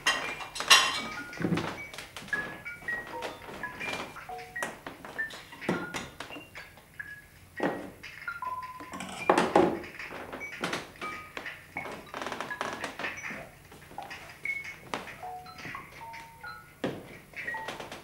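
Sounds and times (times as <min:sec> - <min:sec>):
plate and cutlery clattering: 0:00.0 - 0:04.6.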